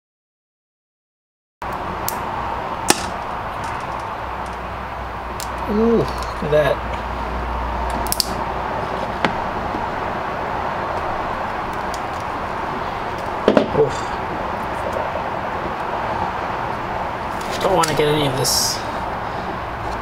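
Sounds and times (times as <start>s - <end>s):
steady background hiss: 1.6s - 20.0s
pliers clicking on plastic: 8.0s - 8.4s.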